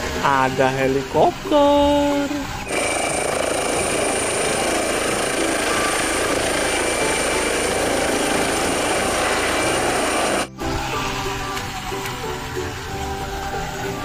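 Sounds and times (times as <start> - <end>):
high turbine whine: 0.0 - 14.0
helicopter rotor noise: 2.4 - 10.6.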